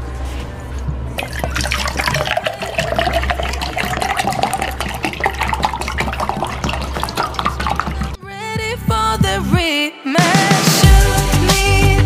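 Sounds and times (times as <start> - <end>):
water pouring into metal cup: 1.2 - 8.2.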